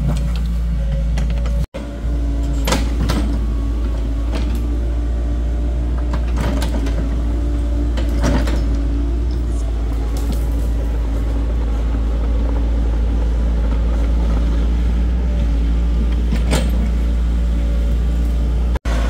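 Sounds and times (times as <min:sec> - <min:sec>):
diesel excavator engine running: 0:00.0 - 0:19.0.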